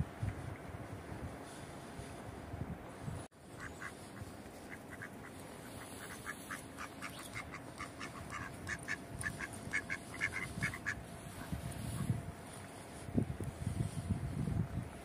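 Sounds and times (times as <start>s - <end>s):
ducks quacking: 3.4s - 12.7s.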